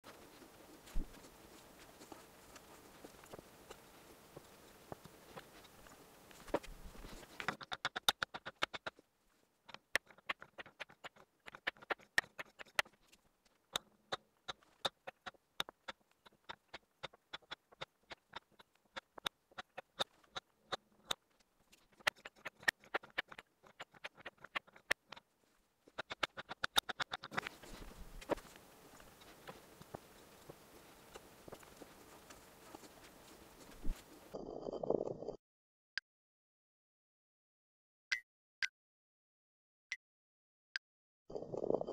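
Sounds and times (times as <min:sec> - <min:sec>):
wooden balls clacking: 0:00.8 - 0:09.0, 0:09.7 - 0:25.2, 0:25.9 - 0:34.3.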